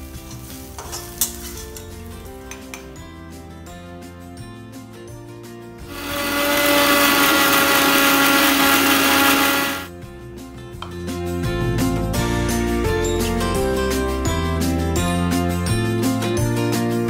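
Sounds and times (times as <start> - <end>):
soft background music: 0.0 - 6.0
mixer grinder motor whining: 5.8 - 9.9.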